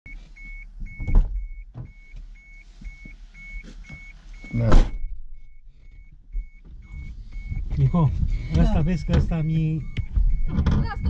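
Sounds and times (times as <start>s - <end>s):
car warning beeper: 0.1s - 11.0s.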